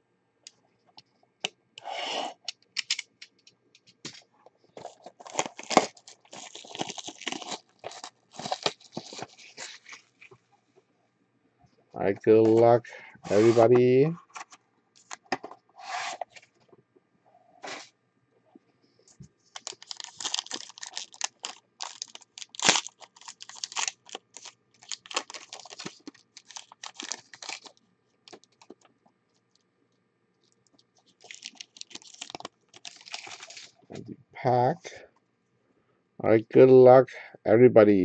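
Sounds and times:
foil wrapper crinkling and tearing: 4.8s - 10.3s, 19.5s - 28.8s, 30.4s - 33.8s.

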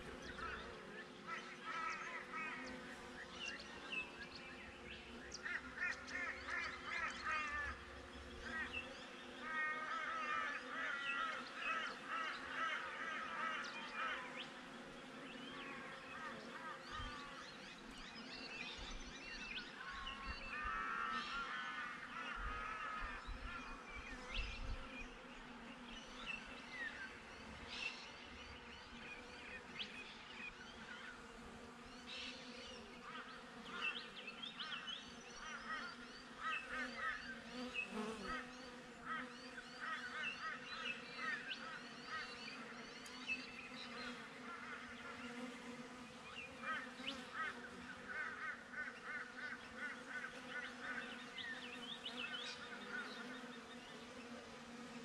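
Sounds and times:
honey bees buzzing: 0.0s - 55.0s
birds chirping: 46.2s - 55.0s.

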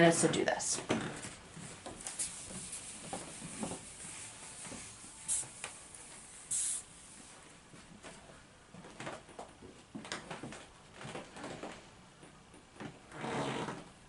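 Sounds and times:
eraser rubbing on whiteboard: 2.0s - 6.8s.

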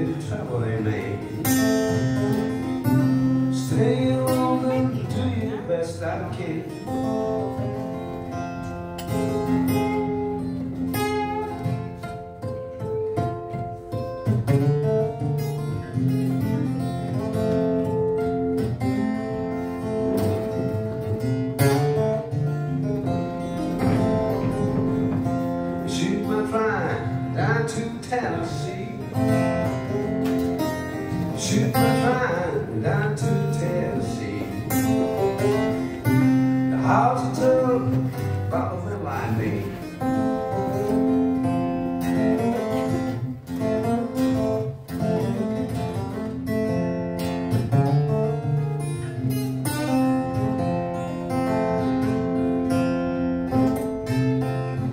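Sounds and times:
man singing: 0.0s - 2.4s, 3.2s - 7.2s, 24.0s - 30.0s, 31.1s - 40.4s
acoustic guitar fingerpicking: 0.0s - 54.9s.

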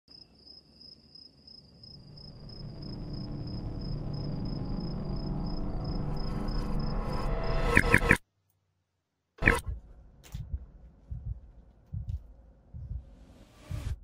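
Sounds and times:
cricket chirping: 0.1s - 8.2s
low rumble: 9.6s - 14.0s.

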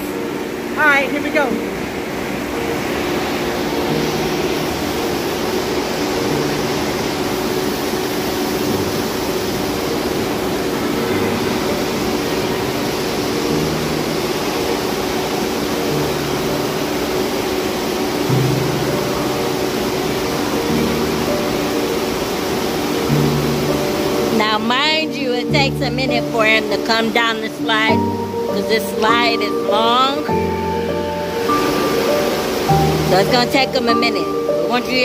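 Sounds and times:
faint steady hum: 0.0s - 35.0s.

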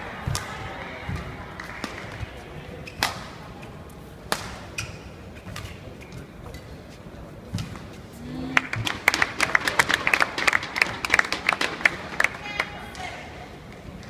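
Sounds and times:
racket hitting shuttlecock: 2.9s - 3.4s, 4.3s - 5.8s.

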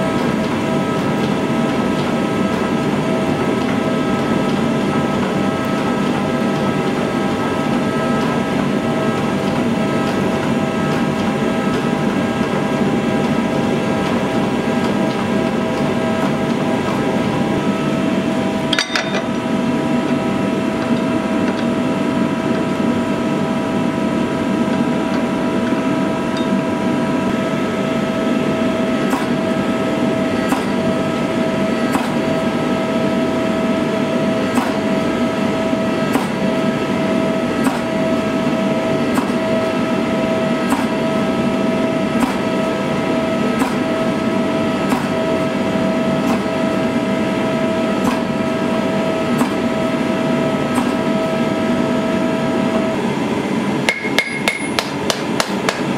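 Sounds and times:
forging press hum and whine: 0.0s - 55.9s
press knocking: 53.8s - 55.9s.

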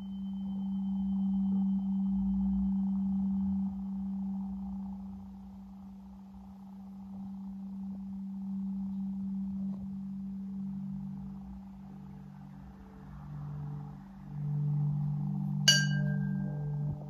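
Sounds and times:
singing bowl hum: 0.0s - 17.0s
faint high ring: 15.6s - 17.0s.

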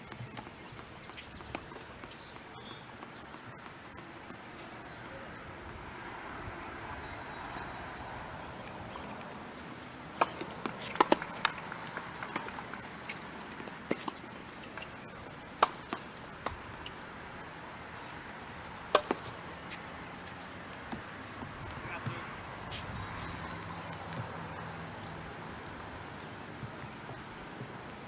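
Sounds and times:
steady background hiss: 0.0s - 28.0s
tennis ball bounces: 6.9s - 17.1s, 18.8s - 27.7s
tennis racket strikes: 10.2s - 14.2s, 18.9s - 19.3s.

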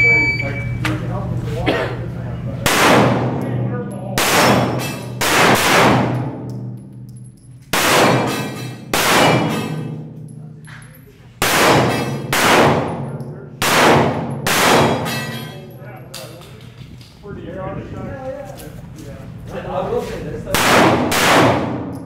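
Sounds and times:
handgun shots echoing indoors: 2.6s - 10.6s, 11.4s - 15.8s, 20.6s - 22.0s.

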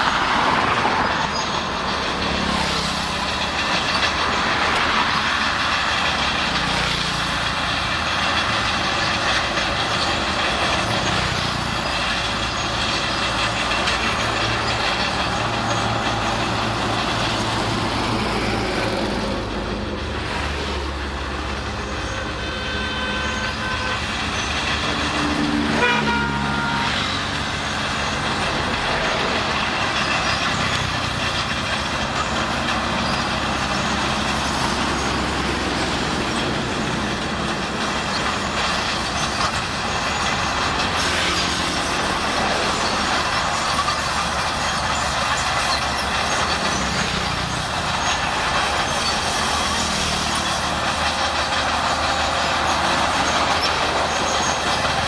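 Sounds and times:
bulldozer diesel engine: 0.0s - 55.0s
vehicle horn: 22.5s - 24.1s, 25.7s - 27.2s.

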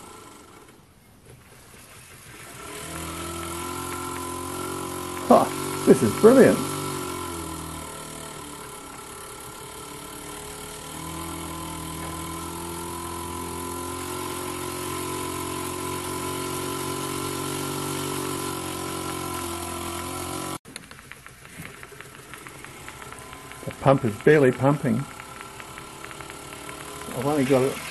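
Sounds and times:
model steam engine whirring: 0.0s - 27.9s
steam hissing: 1.5s - 27.9s
faint ticking: 19.1s - 27.9s.

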